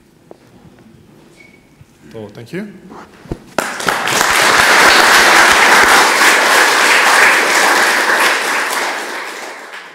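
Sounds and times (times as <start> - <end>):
audience applauding: 3.6 - 9.9.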